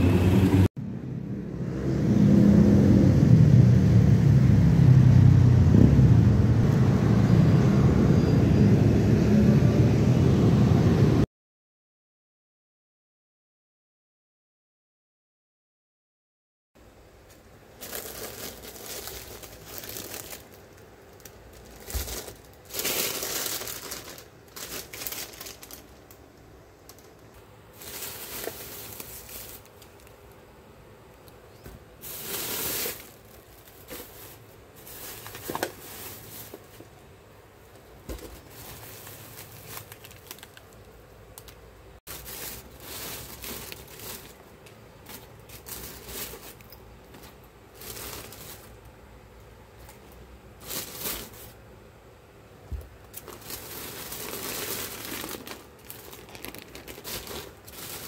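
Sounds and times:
plastic bags rustling and crinkling: 17.2s - 30.4s, 31.9s - 51.7s, 52.7s - 58.0s.

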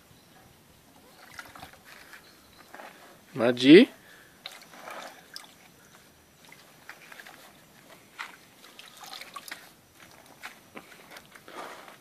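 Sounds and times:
water sloshing and dripping: 0.9s - 2.2s, 4.4s - 11.3s
soft water splashes: 1.0s - 2.2s, 8.2s - 10.2s.

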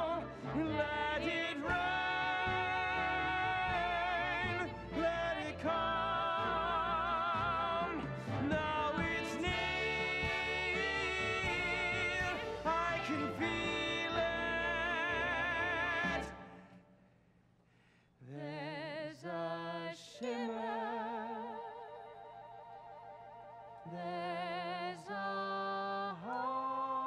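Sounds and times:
operatic singing with orchestra: 0.0s - 16.8s, 18.3s - 22.1s, 23.8s - 27.0s.

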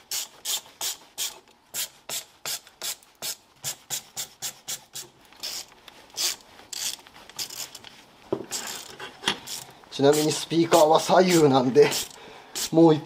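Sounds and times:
hand tool rasping strokes: 8.5s - 12.8s.

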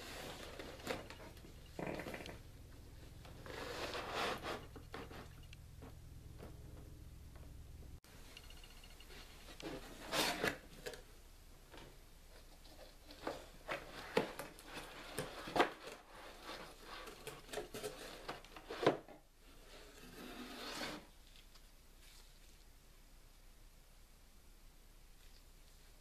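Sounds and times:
cardboard lid scraping: 3.4s - 5.3s.

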